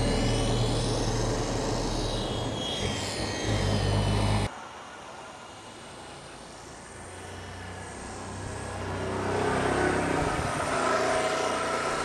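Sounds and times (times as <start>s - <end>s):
rc helicopter motor whine: 0.0s - 4.5s.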